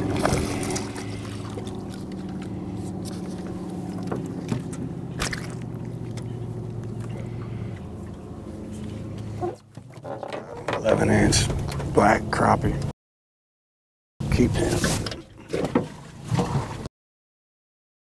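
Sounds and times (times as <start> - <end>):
steady low hum: 0.0 - 9.6
light water splashing: 0.0 - 10.4.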